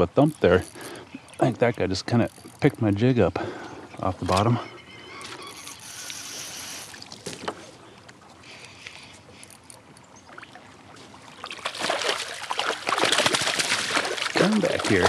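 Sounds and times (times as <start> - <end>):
fish splashing in water: 10.2 - 15.0.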